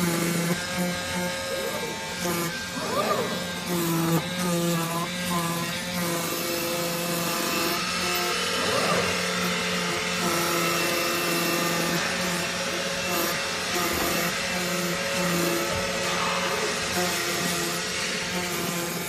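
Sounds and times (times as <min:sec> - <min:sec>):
motor hum tones: 0:00.0 - 0:19.0
machine hiss: 0:07.1 - 0:19.0.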